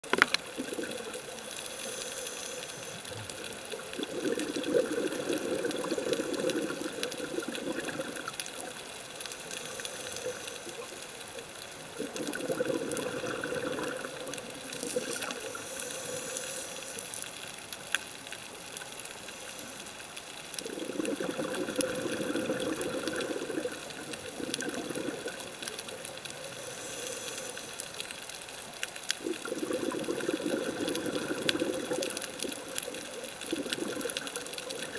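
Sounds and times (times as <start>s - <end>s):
exhaled bubbles rushing: 0.5s - 1.3s, 3.8s - 8.4s, 12.0s - 15.6s, 20.6s - 25.6s, 29.2s - 34.9s.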